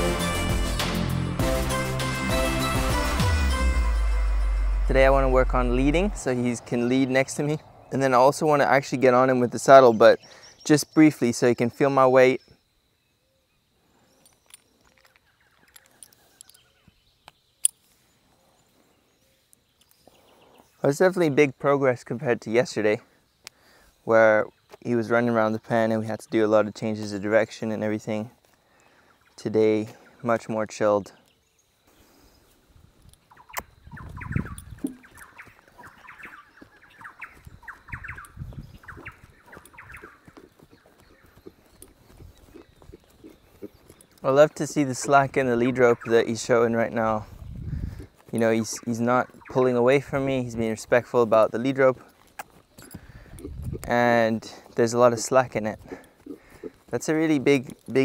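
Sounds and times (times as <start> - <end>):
birds chirping: 2.0 - 58.0
small clicks and rustles: 14.2 - 18.0
faint bird calls: 31.1 - 46.4, 55.8 - 57.0
horse hooves trotting on dirt: 32.9 - 58.0.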